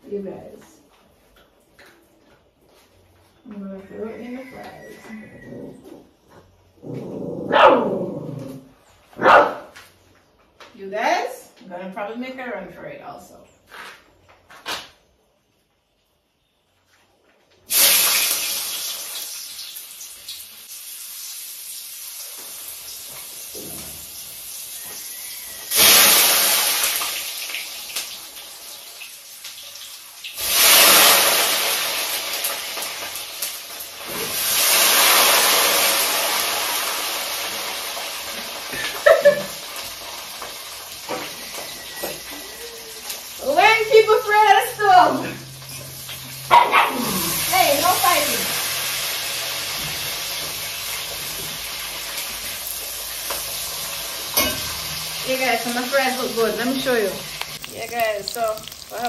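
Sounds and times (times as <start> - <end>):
fries sizzling in oil: 17.6 - 59.0.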